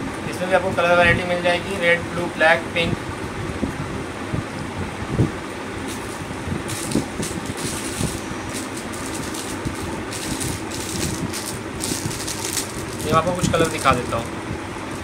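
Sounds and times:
low background hum: 0.0s - 15.0s
plastic packaging crinkling: 5.9s - 14.3s.

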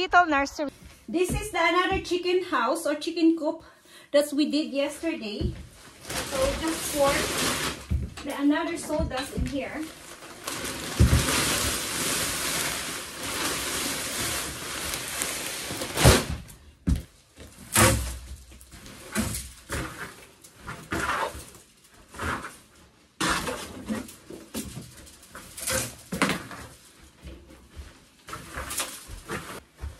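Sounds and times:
wood shavings pouring onto floor: 10.4s - 16.2s
rake scraping shavings: 10.5s - 16.2s.

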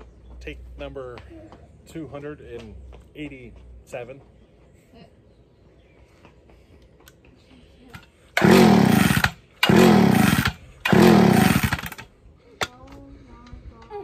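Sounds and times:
chainsaw pull-start sputtering: 8.3s - 12.1s.

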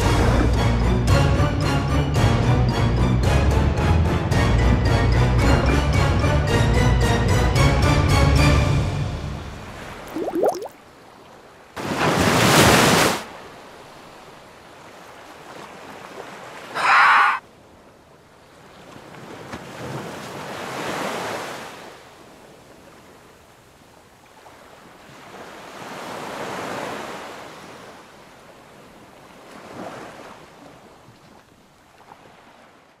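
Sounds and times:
ocean waves washing in: 9.4s - 16.8s.

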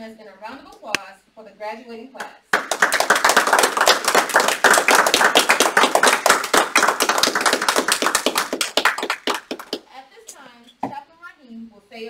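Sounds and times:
group applauding: 2.5s - 9.9s.

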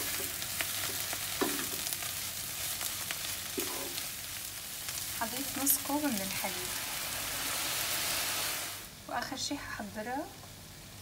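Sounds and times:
filling sizzling in a frying pan: 0.0s - 11.0s
wooden spatula scraping a pan: 3.5s - 4.1s.

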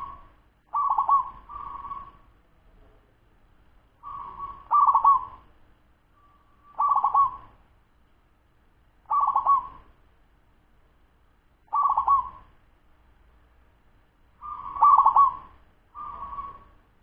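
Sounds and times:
dove cooing: 0.0s - 2.3s, 4.0s - 5.5s, 6.7s - 7.6s, 9.1s - 9.9s, 11.7s - 12.5s, 14.4s - 16.8s.

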